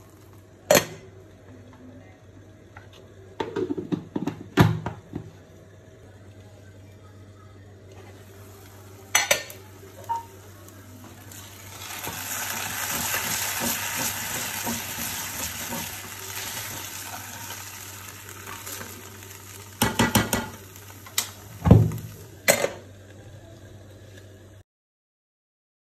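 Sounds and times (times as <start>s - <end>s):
noodles sizzling in pot: 0.0s - 0.8s, 7.9s - 23.1s.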